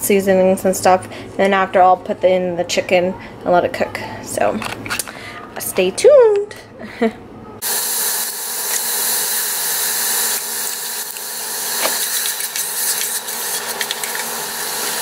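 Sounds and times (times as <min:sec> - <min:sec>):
onions sizzling in hot oil: 0:07.6 - 0:15.0.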